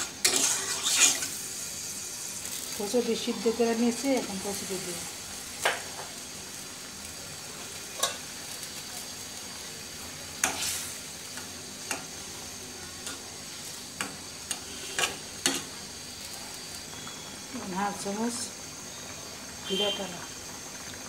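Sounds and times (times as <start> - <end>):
curry sizzling in a pot: 0.0 - 21.0
spoon scraping a pot: 0.2 - 1.2.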